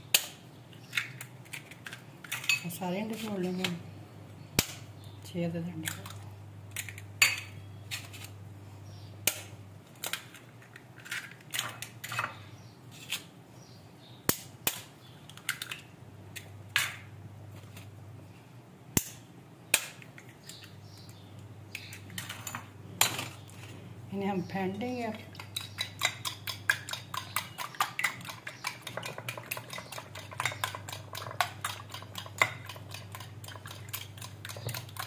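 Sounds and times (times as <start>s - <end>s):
eggshells cracking with spoon: 14.3s - 17.0s, 25.3s - 35.0s.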